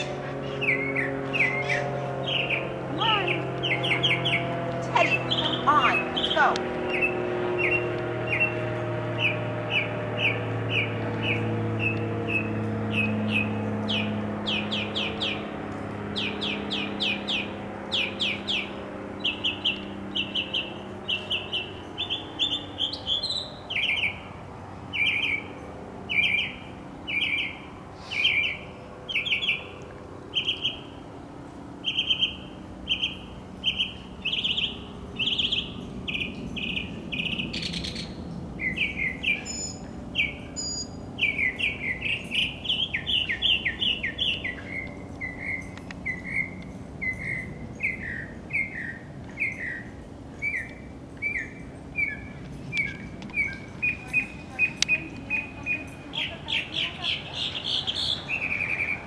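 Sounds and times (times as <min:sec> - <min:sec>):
songbird chirping: 0:00.0 - 0:31.2, 0:31.8 - 0:59.0.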